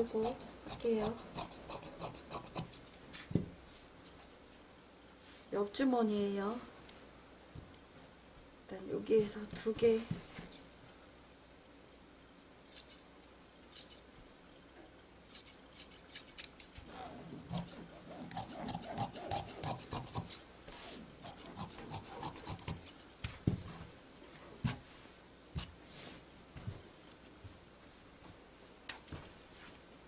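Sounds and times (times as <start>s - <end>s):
shears snipping fabric: 0.0s - 3.3s, 15.3s - 16.8s, 17.5s - 20.4s, 21.2s - 23.0s.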